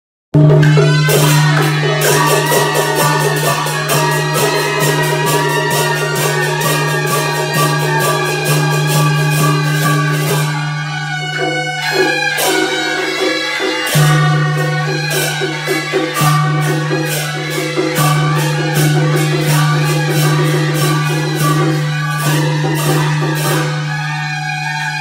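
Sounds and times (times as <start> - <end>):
quick percussion beat: 0.4 - 23.7.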